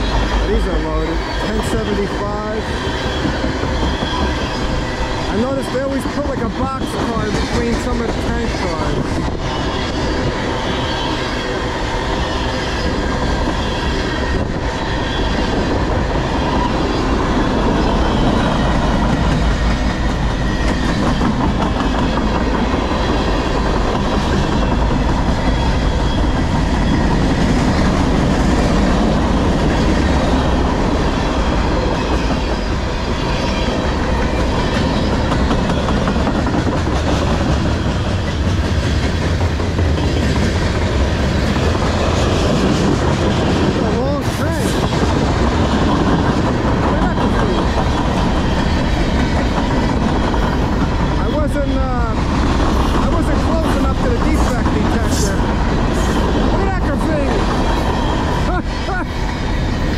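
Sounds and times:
freight train rumbling past: 0:00.0 - 0:59.9
wheels clacking over rail joints: 0:15.5 - 0:58.4.

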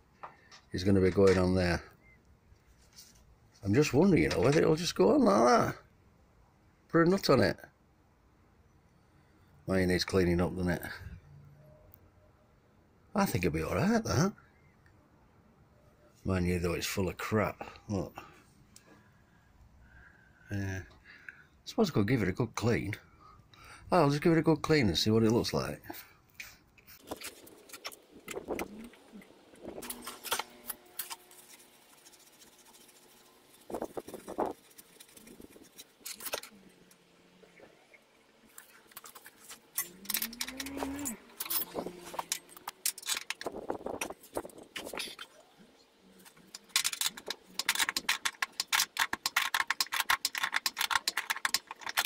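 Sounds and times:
scrubbing on metal: 0:26.9 - 0:37.6, 0:46.2 - 0:52.0.

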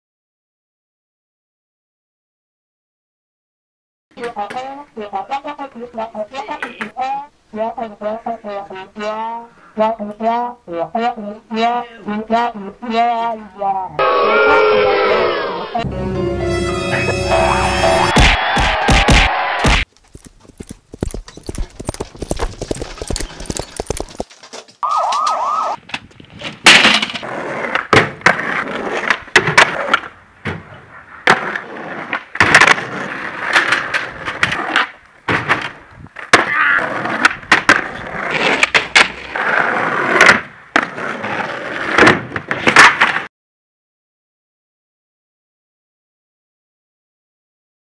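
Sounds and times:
skateboard wheels rolling on asphalt: 0:19.8 - 0:43.3
skateboard cracks: 0:22.0 - 0:43.3.

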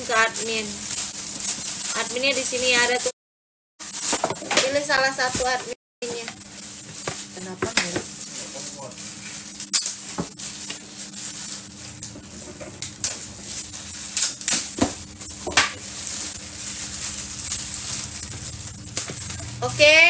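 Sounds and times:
low hum: 0:09.0 - 0:20.0.

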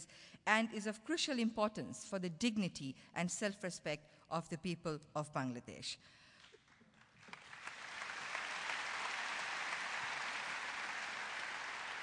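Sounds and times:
audience applause: 0:07.1 - 0:12.0.

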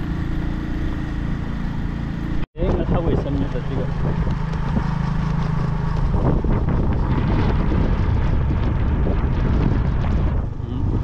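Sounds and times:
motorcycle engine running: 0:00.0 - 0:11.0
wind buffeting microphone: 0:02.6 - 0:11.0.

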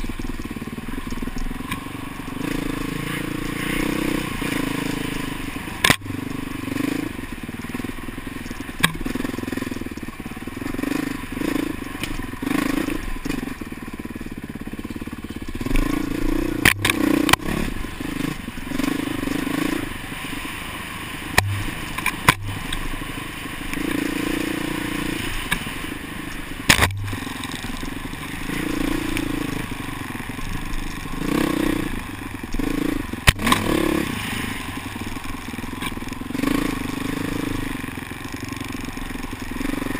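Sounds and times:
dirt bike engine revving: 0:00.0 - 0:39.9
sharp knocks: 0:21.4 - 0:22.6, 0:26.7 - 0:27.2.

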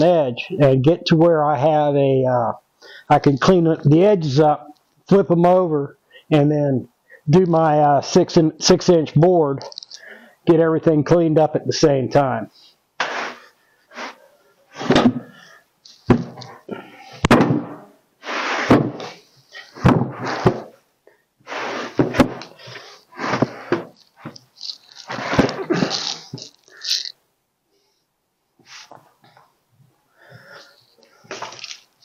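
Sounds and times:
wood scraping and sliding on wood: 0:13.0 - 0:15.4, 0:17.6 - 0:20.8, 0:21.5 - 0:27.1
sharp knocks of boards: 0:16.1 - 0:16.4, 0:17.2 - 0:17.8, 0:18.7 - 0:19.1.

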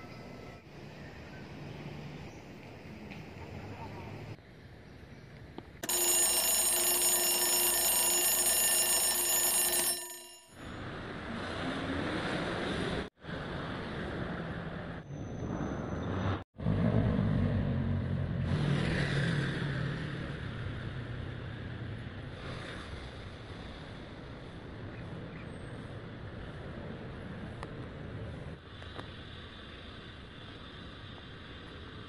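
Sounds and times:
city street traffic rumble: 0:00.0 - 0:05.8, 0:10.6 - 0:32.0.

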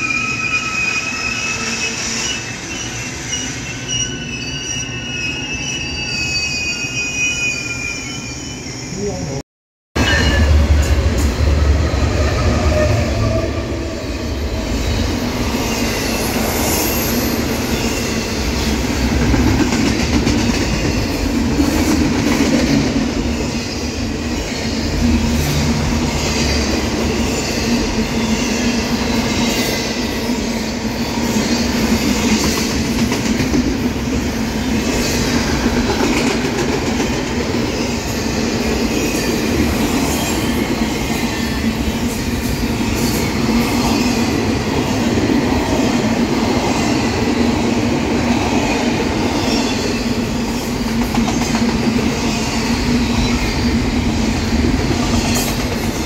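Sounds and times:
diesel locomotive passing: 0:10.0 - 0:56.0.

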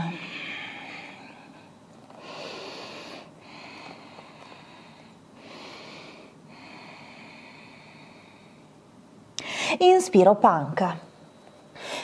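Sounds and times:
woman breathing deeply: 0:00.0 - 0:08.8, 0:11.8 - 0:12.0.

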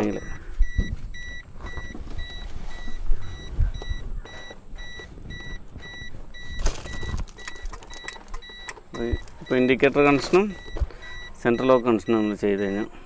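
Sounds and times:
electronic warning beeps: 0:00.0 - 0:13.0
wiring rustling and knocking: 0:04.8 - 0:11.0.

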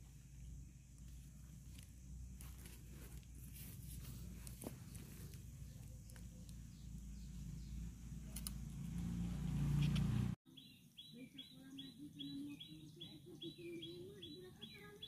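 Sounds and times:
bird chirping: 0:04.7 - 0:15.0.

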